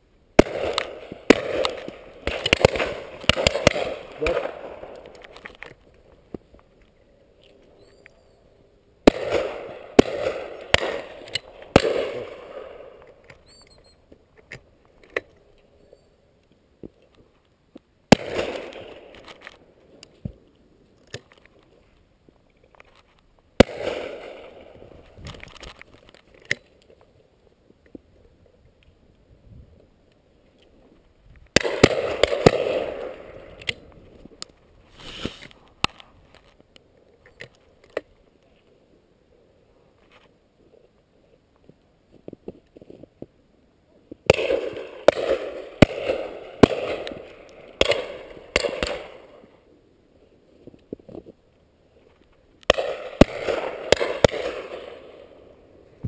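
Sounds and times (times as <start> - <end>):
shotgun shots with echo: 0.4 - 5.0, 9.0 - 12.9, 31.6 - 33.5, 44.3 - 49.3, 52.7 - 55.3.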